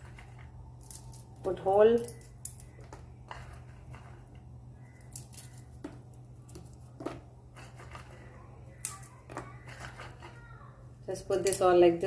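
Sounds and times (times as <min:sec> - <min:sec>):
walnut pieces dropping into batter: 0:00.0 - 0:10.4
steady low hum: 0:00.0 - 0:12.0.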